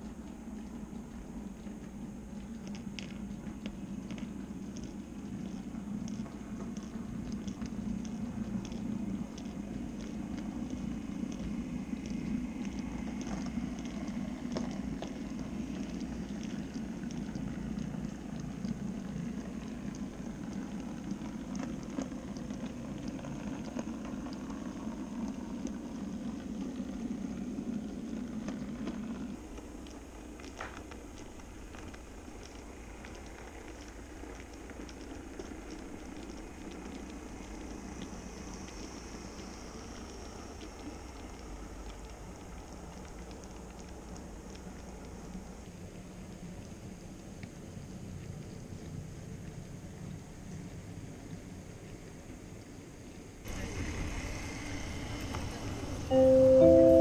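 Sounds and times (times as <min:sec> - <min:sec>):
wheels clicking over rail joints: 0:53.5 - 0:56.1
model train rumbling: 0:53.5 - 0:57.0.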